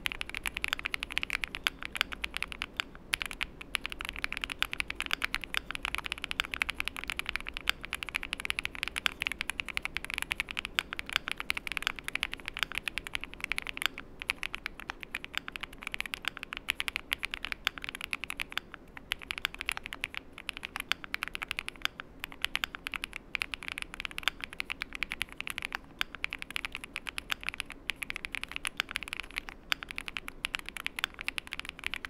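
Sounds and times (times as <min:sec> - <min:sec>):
mechanical keyboard typing: 0:00.0 - 0:32.0.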